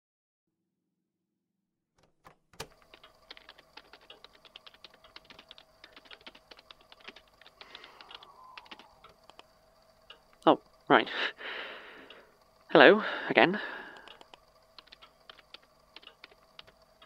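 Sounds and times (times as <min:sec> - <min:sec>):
typing on computer keyboard: 0:02.0 - 0:09.5, 0:14.0 - 0:16.8
faint steady hum: 0:02.5 - 0:17.0.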